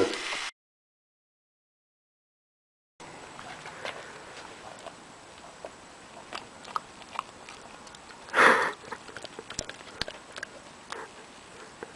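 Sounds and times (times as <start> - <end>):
dog sniffing: 3.4 - 11.9.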